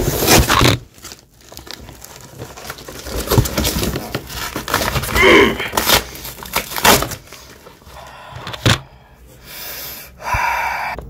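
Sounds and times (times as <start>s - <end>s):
cardboard box rustling and knocking: 1.6s - 5.2s
person grunting: 5.1s - 5.8s.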